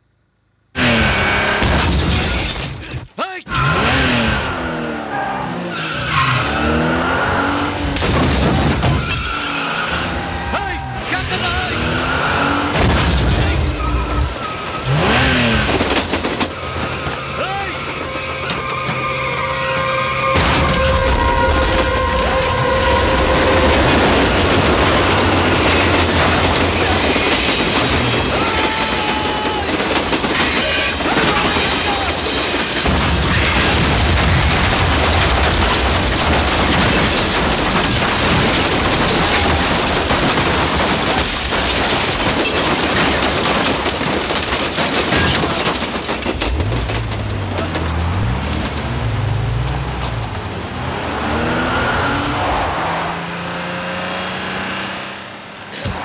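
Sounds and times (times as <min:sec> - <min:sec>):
train wagons rattling: 0:12.8 - 0:51.2.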